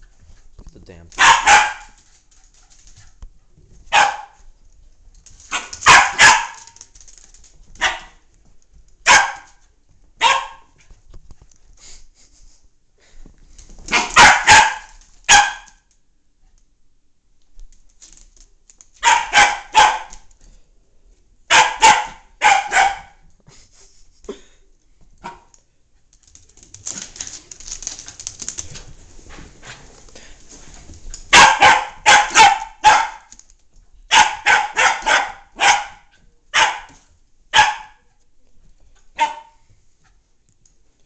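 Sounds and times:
puppy barking: 1.2 - 2.0, 3.9 - 4.4, 5.5 - 6.7, 7.8 - 8.2, 9.0 - 9.6, 10.2 - 10.8, 13.9 - 15.8, 19.0 - 20.3, 21.5 - 23.2, 31.3 - 33.3, 34.1 - 38.1, 39.2 - 39.6.

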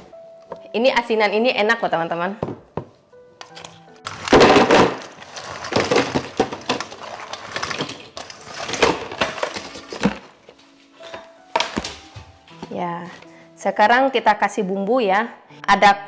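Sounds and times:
crab shells clattering: 3.4 - 10.6.

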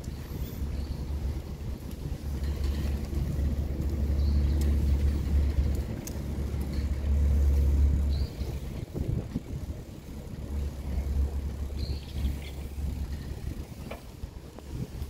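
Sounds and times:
bicycle road noise rumble: 0.0 - 15.0
wind buffeting: 0.0 - 15.0
faint clicks: 3.8 - 7.1.

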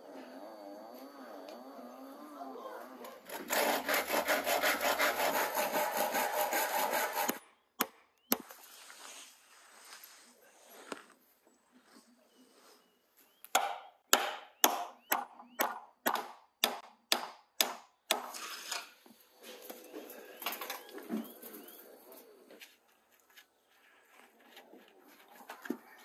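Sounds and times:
birds chirping faintly: 7.3 - 16.0, 19.3 - 26.0
sharp chopping blows: 13.5 - 18.2.

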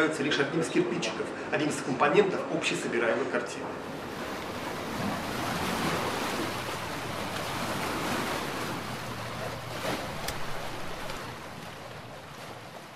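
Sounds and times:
sea surf washing: 3.8 - 12.9.

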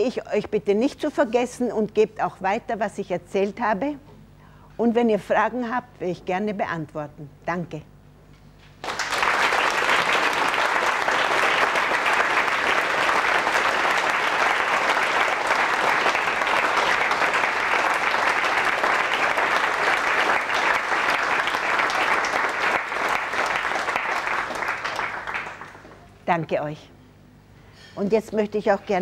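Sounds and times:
students applauding: 8.8 - 26.1.

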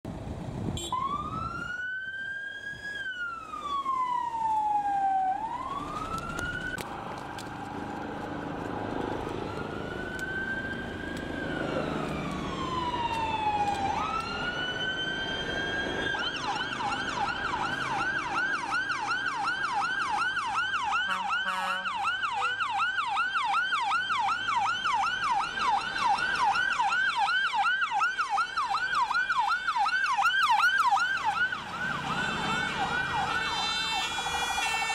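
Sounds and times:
vehicle engines passing: 2.4 - 34.9
electronic siren wailing and yelping: 11.3 - 34.9.

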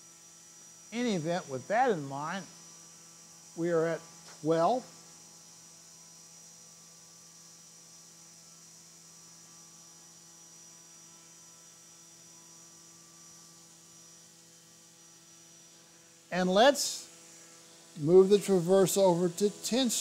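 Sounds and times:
thin high whine: 0.6 - 5.5, 15.4 - 20.0.

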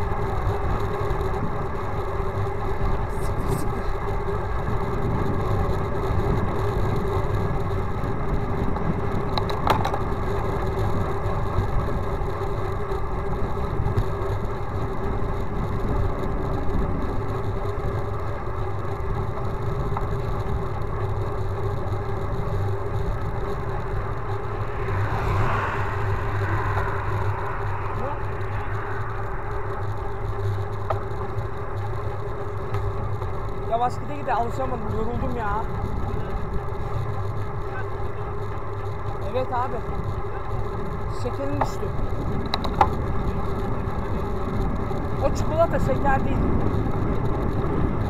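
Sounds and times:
bike rolling on asphalt: 0.0 - 48.0
car passing: 22.9 - 32.2.

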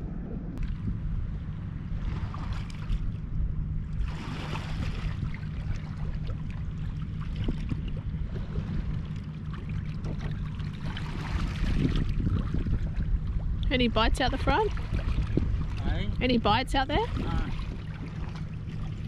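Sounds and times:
steady low hum: 0.0 - 19.0
water lapping against rocks: 4.0 - 16.2, 16.8 - 19.0.

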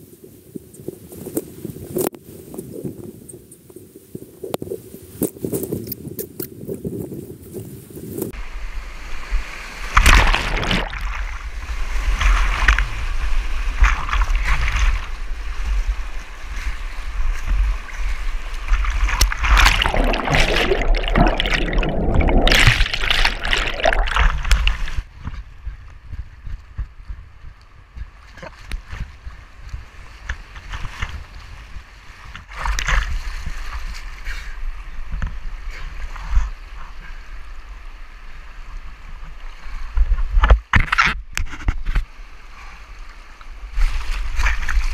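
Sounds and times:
whitewater rushing and splashing: 9.0 - 25.1
dull underwater gurgle: 9.9 - 13.0, 17.5 - 25.1.

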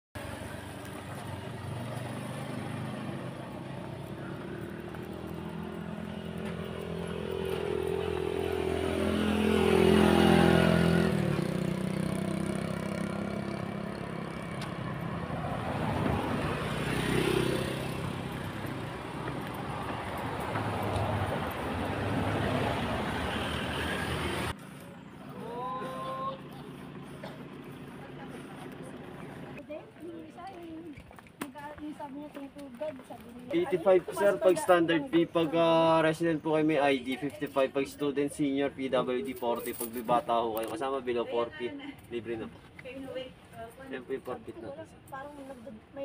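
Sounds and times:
vehicle passing by: 0.2 - 29.8.

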